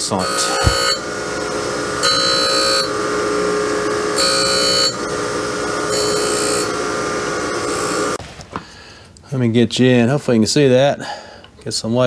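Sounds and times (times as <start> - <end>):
grinder motor whine: 0.0 - 8.2
grinding wheel hiss: 0.0 - 8.2.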